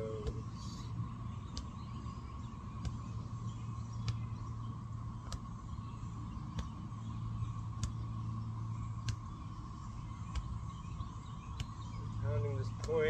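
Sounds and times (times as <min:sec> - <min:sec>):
background hum: 0:00.0 - 0:13.0
fist thumping body: 0:06.5 - 0:06.8, 0:10.3 - 0:10.6.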